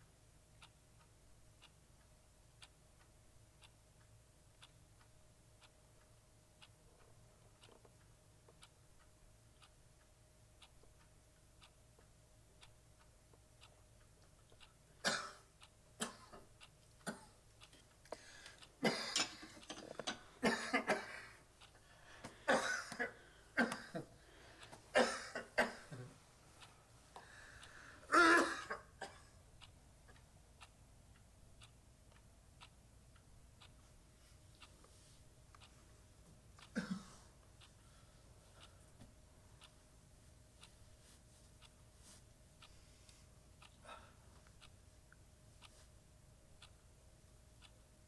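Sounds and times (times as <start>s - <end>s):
clock ticking: 0.0s - 48.0s
man coughing and clearing throat: 15.0s - 16.4s, 18.8s - 19.8s, 20.4s - 21.4s, 22.5s - 24.1s, 24.9s - 26.2s, 28.1s - 29.3s, 36.7s - 37.2s.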